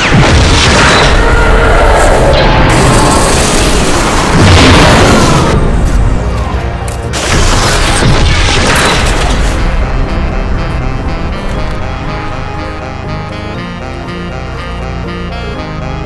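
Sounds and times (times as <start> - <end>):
booming rumbling sound effects: 0.0 - 6.3, 7.1 - 11.8
background music: 0.0 - 16.0.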